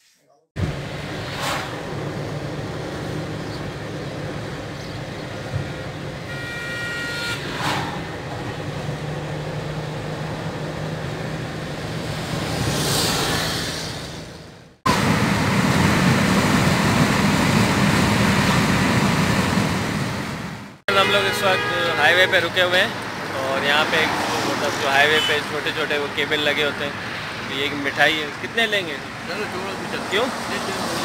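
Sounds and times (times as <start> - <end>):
wind and road rumble: 0.6 - 20.8, 22.4 - 31.0
car engine and road hum: 0.6 - 20.9
vehicle horn: 5.4 - 8.0, 20.9 - 22.6, 25.1 - 25.5
vehicle passing: 7.4 - 14.6, 22.8 - 31.0.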